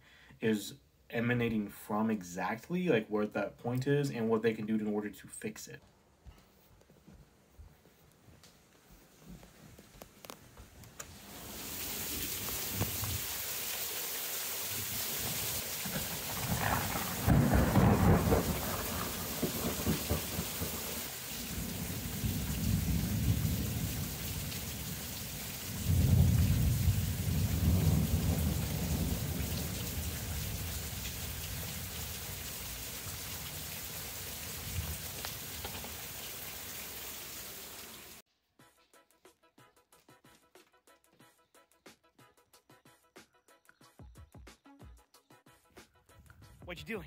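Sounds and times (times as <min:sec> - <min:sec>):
heavy rain pouring: 0:10.9 - 0:38.2
thunder: 0:15.2 - 0:25.0, 0:25.7 - 0:31.9.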